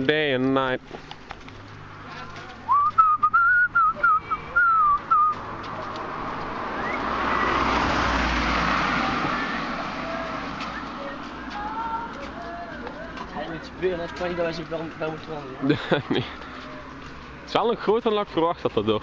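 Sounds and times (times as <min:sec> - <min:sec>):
car passing: 0:00.8 - 0:19.0
wavering whistle: 0:02.7 - 0:05.4, 0:06.7 - 0:07.6.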